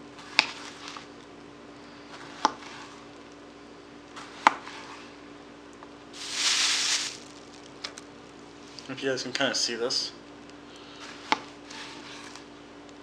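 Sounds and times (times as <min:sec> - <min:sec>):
rustling hiss: 0:06.2 - 0:07.7.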